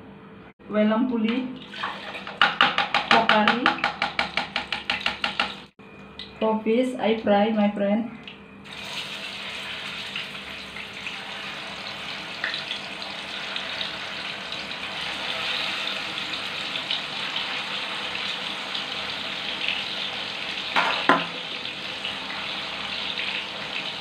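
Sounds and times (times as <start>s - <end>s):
fish sizzling in hot oil: 8.7s - 24.0s.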